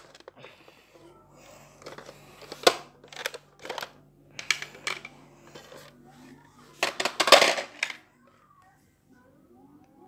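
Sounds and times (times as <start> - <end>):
plastic parts clacking on tile floor: 0.0 - 0.8, 1.8 - 6.0, 6.8 - 8.1.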